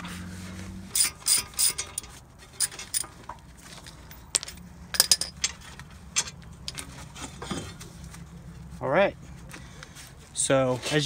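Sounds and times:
metallic clicks of tools and brake parts: 0.9s - 7.8s.

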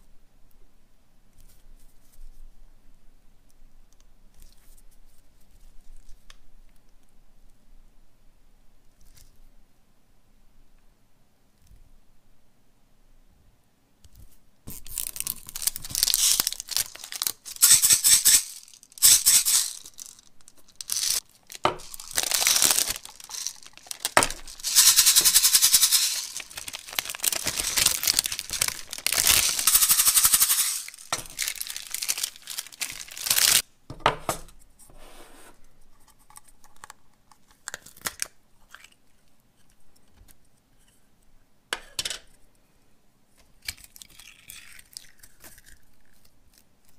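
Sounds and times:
faint handling sounds: 14.0s - 33.6s
toy crinkling and rasping: 14.7s - 33.6s.

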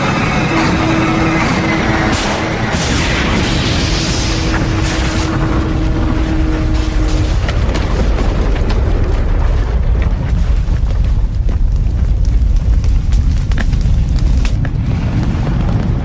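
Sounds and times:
explosion rumble: 0.0s - 16.0s
large fire crackling: 0.0s - 16.0s.

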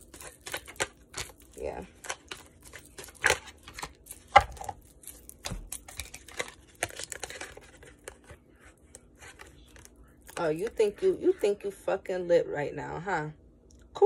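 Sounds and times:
cards being shuffled: 0.0s - 11.0s.

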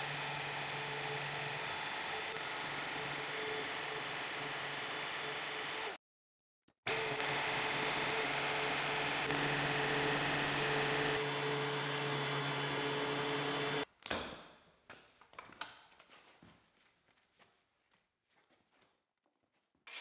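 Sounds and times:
band saw cutting steel: 0.0s - 6.0s, 6.9s - 13.9s.

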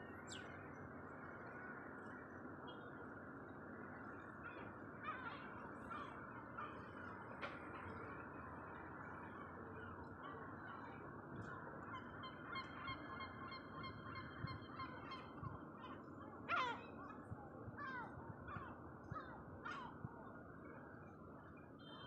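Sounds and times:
steady background noise: 0.0s - 22.0s
gulls calling: 4.0s - 20.1s.

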